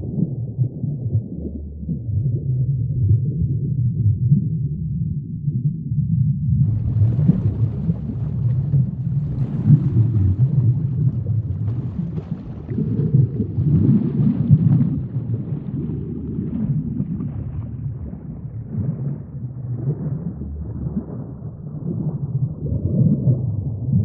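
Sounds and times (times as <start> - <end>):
underwater rush of water: 6.6 - 24.0.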